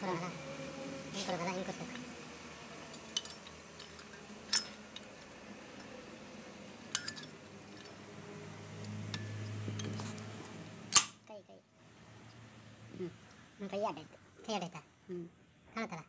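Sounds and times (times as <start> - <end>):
low hum: 0.0 - 14.2.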